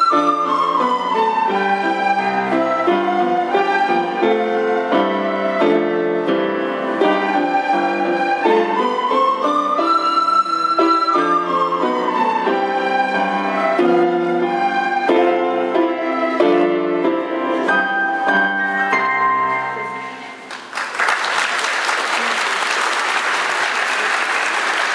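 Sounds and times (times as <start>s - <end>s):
audience applause: 20.4s - 24.9s.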